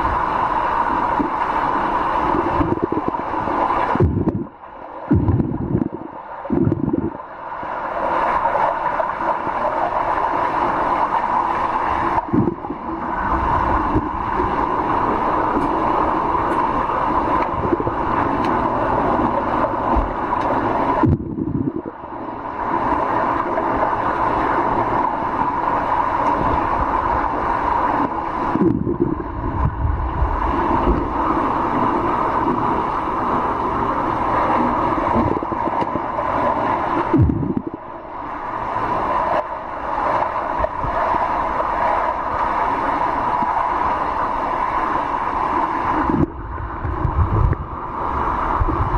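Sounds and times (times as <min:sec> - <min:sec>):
muffled gurgling: 0:00.0 - 0:07.4, 0:08.0 - 0:48.9.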